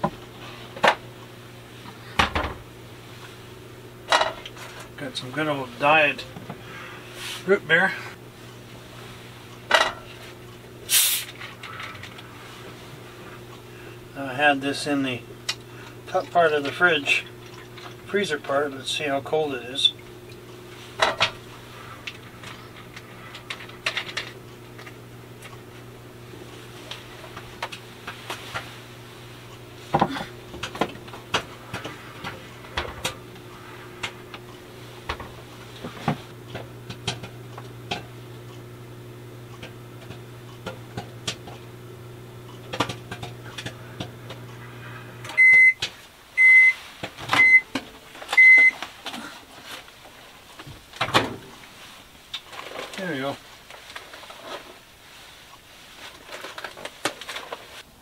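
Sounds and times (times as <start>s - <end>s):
microwave oven humming: 0.0s - 58.0s
microwave beeps: 45.2s - 45.8s, 46.4s - 48.8s.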